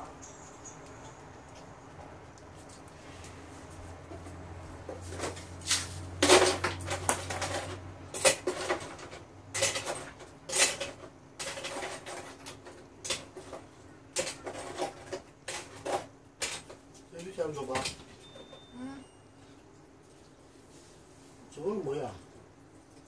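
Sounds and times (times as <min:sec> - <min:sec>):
household objects clattering: 0:04.9 - 0:16.9.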